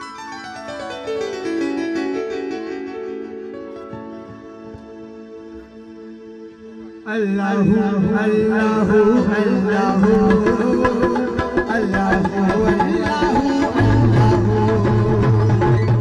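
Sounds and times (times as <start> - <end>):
electronic keyboard chord: 0.0 - 8.7
tabla: 7.0 - 16.0.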